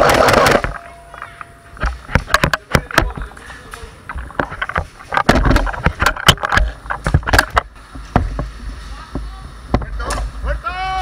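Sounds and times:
sharp clicks and knocks: 0.0 - 10.3
microphone handling rumble: 4.0 - 10.1.

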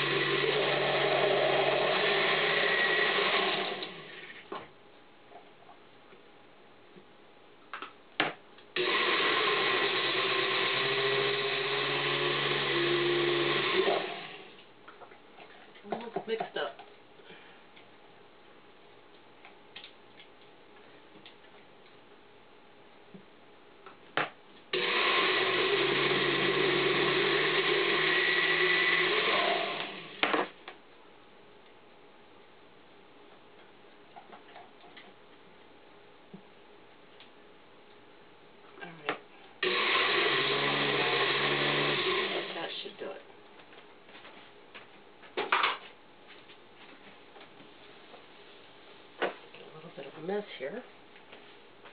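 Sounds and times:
blender motor hum: 0.0 - 4.4, 8.8 - 14.6, 24.7 - 30.4, 39.6 - 42.7.

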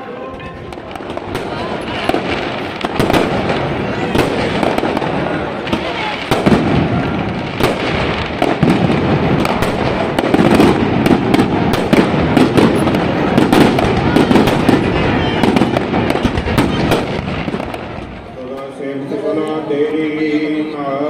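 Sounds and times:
fireworks bangs and crackles: 0.0 - 20.8
continuous din: 0.0 - 21.0.

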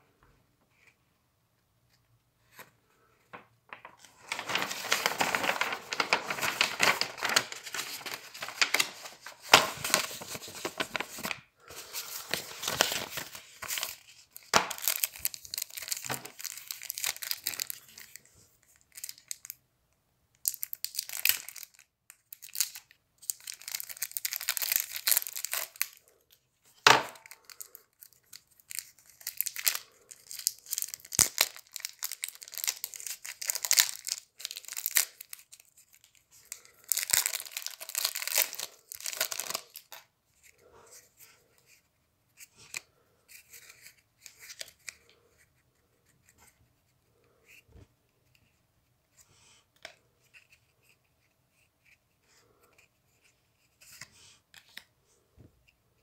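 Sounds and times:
packaging rustling and tearing: 3.7 - 19.5, 20.5 - 26.1, 26.7 - 40.0.

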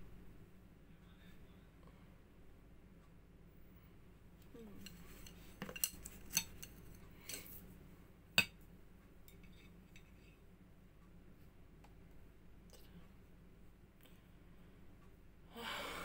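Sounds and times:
cutlery clinking on dishes: 4.8 - 7.6.

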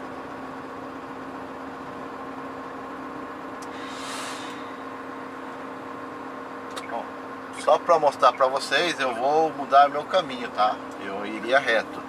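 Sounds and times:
truck diesel engine droning: 0.0 - 12.0
short air hiss: 3.6 - 4.9.

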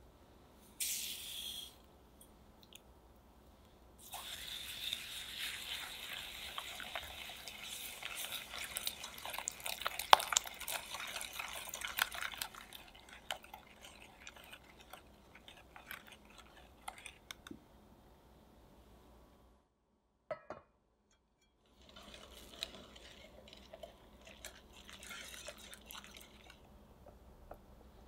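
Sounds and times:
whisk beating in glass bowl: 4.8 - 17.4, 21.8 - 26.6.

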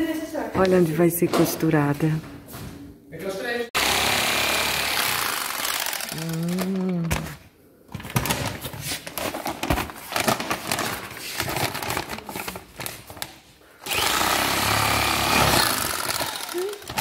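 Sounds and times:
paper sack rustling: 8.0 - 13.4
bag-closing sewing machine running: 13.8 - 17.0.

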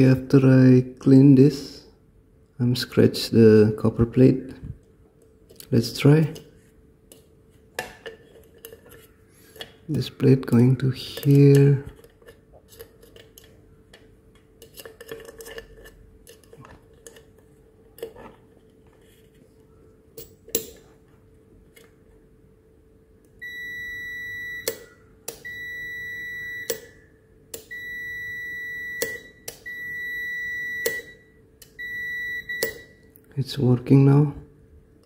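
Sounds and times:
multimeter continuity beeps: 23.4 - 27.0, 27.6 - 33.1.

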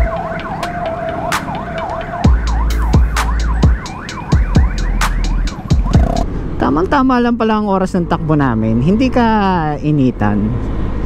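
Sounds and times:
siren yelping: 0.0 - 6.3
steady siren tone: 0.0 - 6.4.

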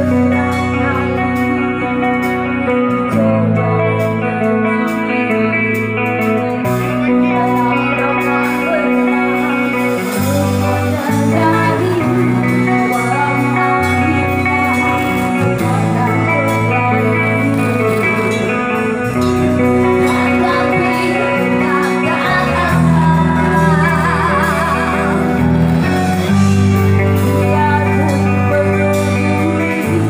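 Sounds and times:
drums: 0.0 - 30.0
electric guitar: 0.0 - 30.0
women singing: 7.2 - 18.5, 19.5 - 30.0.

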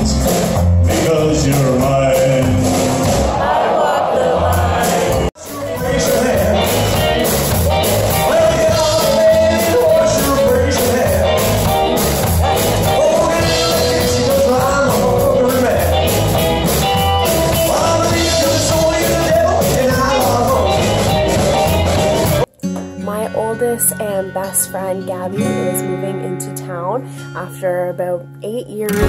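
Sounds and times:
man singing: 0.0 - 3.0, 5.0 - 7.3, 8.1 - 12.0, 12.6 - 16.4, 17.2 - 21.2
live rock and roll band: 0.0 - 22.5.

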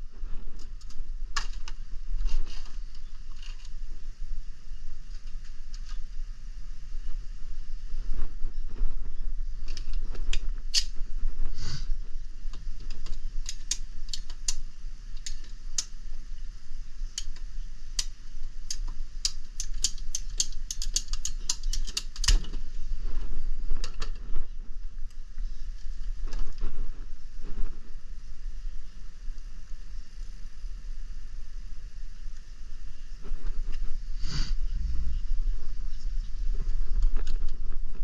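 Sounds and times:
low rumble: 0.0 - 19.2, 22.4 - 38.0
hand tools clicking and snapping: 9.7 - 11.0, 12.5 - 16.0, 17.1 - 22.5.

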